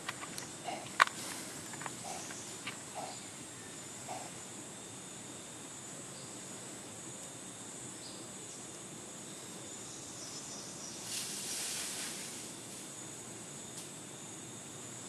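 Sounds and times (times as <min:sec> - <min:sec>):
high insect drone: 0:00.0 - 0:15.0
hissing rush of noise: 0:10.9 - 0:14.1.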